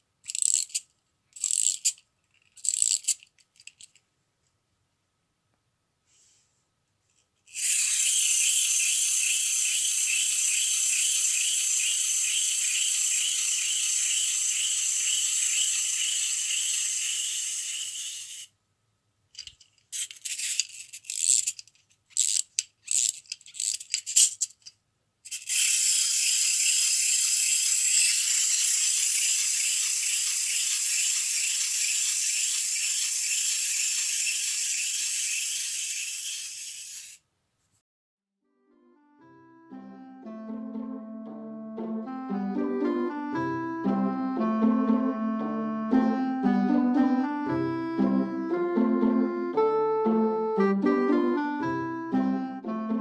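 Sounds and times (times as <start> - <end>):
toy winding clicks: 0.2 - 4.0, 7.5 - 18.5, 19.4 - 37.2
wind-up toy motor whirring: 0.2 - 4.0, 7.5 - 18.5, 19.4 - 24.7, 25.3 - 37.2.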